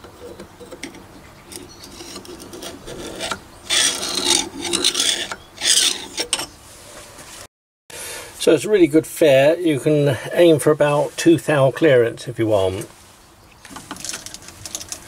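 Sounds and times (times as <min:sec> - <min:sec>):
metal scraping on metal: 0:00.0 - 0:06.8.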